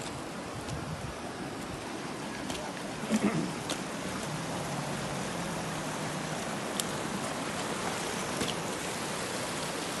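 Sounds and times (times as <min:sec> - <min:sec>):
rain hissing: 0:00.0 - 0:10.0
water rushing over rocks: 0:00.0 - 0:10.0.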